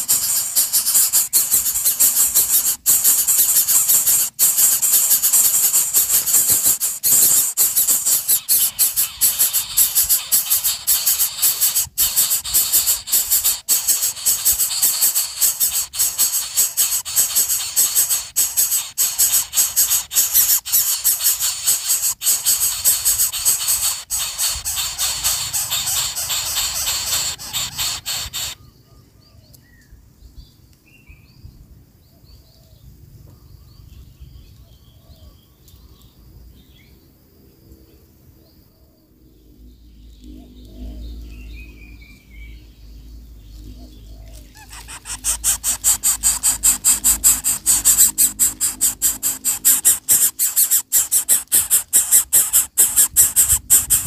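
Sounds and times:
nestlings rasping hisses: 0.0s - 28.6s, 44.6s - 54.0s
faint chirps: 0.0s - 31.6s, 37.9s - 54.0s.

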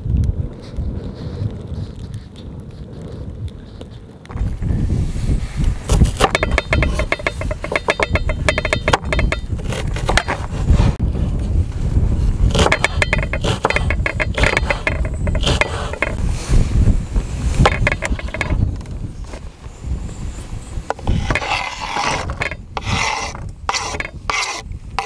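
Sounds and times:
knife chopping on wooden board: 12.5s - 14.8s.

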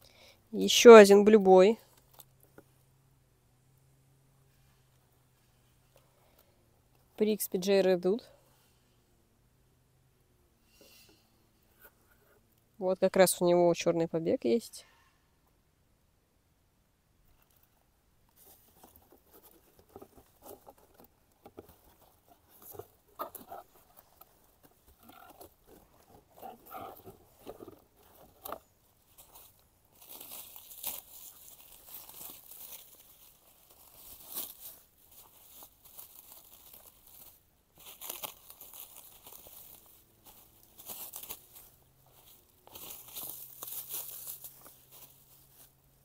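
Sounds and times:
packaging crinkling and tearing: 30.0s - 39.8s.

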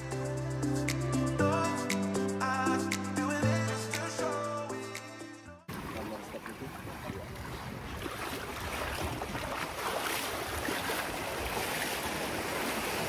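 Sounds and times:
water splashing around wading legs: 5.7s - 13.0s.

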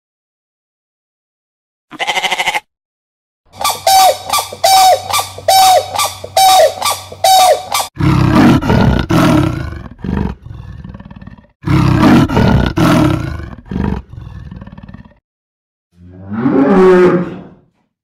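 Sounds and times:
crane honking call: 3.6s - 7.9s
leopard roaring and grunting: 7.9s - 15.2s, 16.0s - 17.7s.

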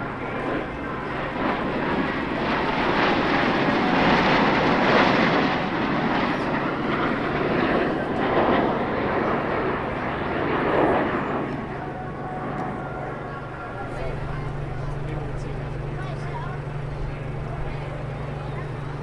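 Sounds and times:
jet noise flying past: 0.0s - 19.0s.

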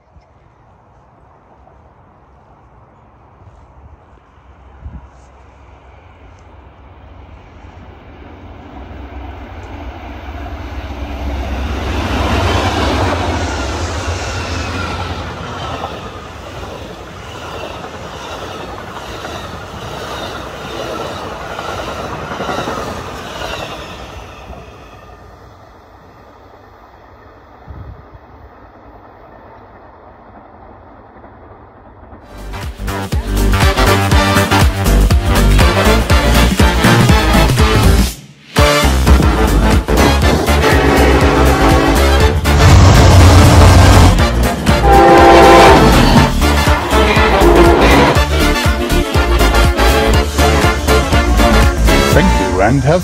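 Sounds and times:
train wheels clacking on rails: 11.0s - 24.8s
locomotive rumble: 38.7s - 53.0s.

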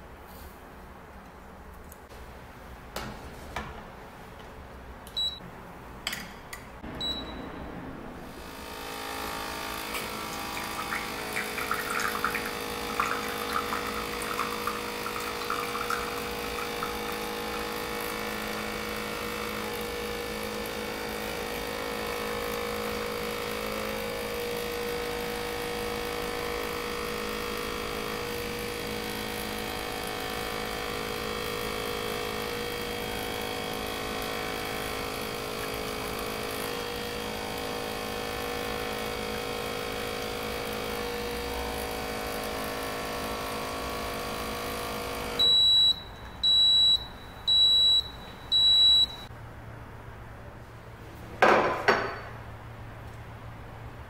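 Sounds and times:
short high beeps: 7.0s - 7.5s
coffee maker pump humming: 8.3s - 49.3s.

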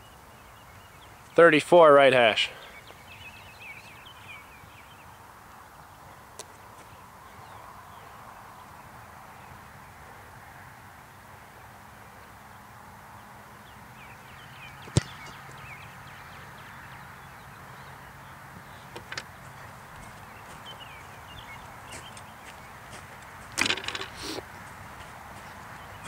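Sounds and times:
foot kicking football thump: 14.8s - 15.4s.

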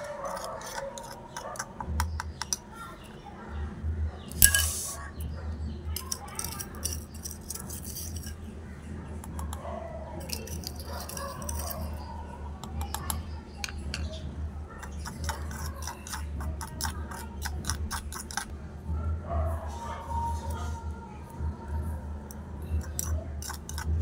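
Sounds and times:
metal spatula scraping clay pot: 0.0s - 2.6s, 4.3s - 5.3s, 6.0s - 8.5s, 10.2s - 12.1s, 12.9s - 18.5s, 22.3s - 24.0s.

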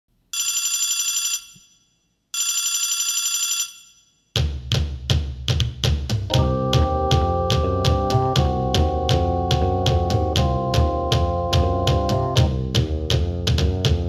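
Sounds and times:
telephone bell ringing: 0.4s - 4.2s
music with drum kit: 4.4s - 14.0s.

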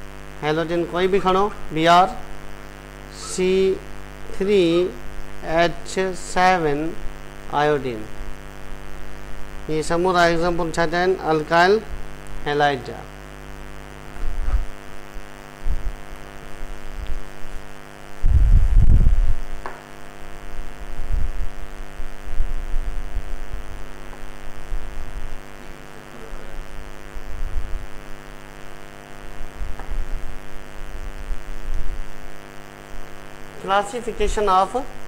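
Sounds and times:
electrical hum: 0.0s - 35.0s
low thumps near microphone: 18.2s - 19.8s, 29.4s - 30.4s.

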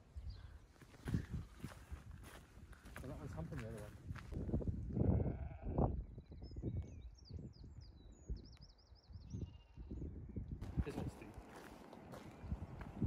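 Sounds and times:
sheep bleating: 5.0s - 5.8s
small bird chirping and trilling: 5.6s - 10.4s.

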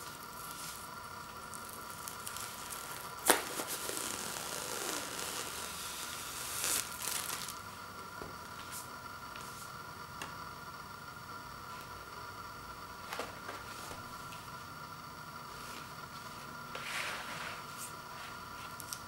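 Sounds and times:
plastic wrap crinkling: 0.0s - 7.7s
plastic film snapping: 1.5s - 7.6s.

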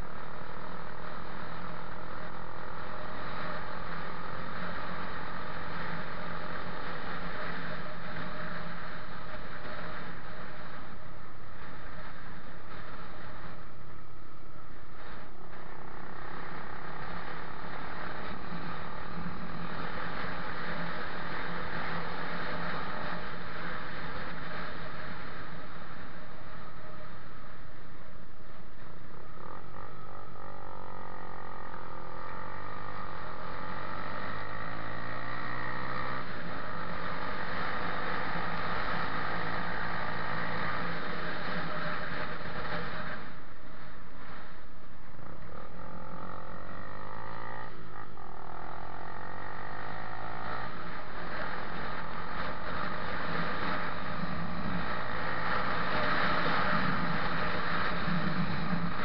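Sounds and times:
motorcycle engine running: 0.0s - 59.0s
wind rushing over microphone: 50.3s - 59.0s.

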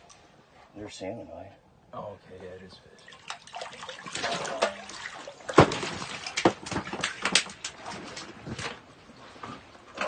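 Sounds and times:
water splashing in a hole: 3.0s - 8.6s
sharp knocks: 5.5s - 7.5s.

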